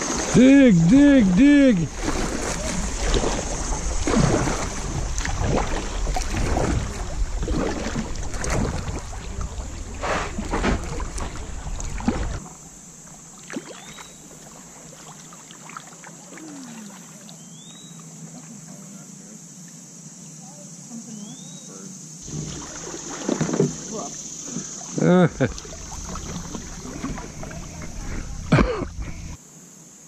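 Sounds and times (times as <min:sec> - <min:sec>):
wind buffeting microphone: 0:00.0 - 0:12.4, 0:25.3 - 0:29.4
paddle drips: 0:00.0 - 0:18.6, 0:22.2 - 0:29.4
paddle splashes: 0:00.0 - 0:18.6, 0:22.2 - 0:29.4
rushing water: 0:00.0 - 0:18.9, 0:22.2 - 0:29.4
faint bird chirps: 0:13.6 - 0:14.3, 0:16.4 - 0:18.2, 0:21.1 - 0:21.9.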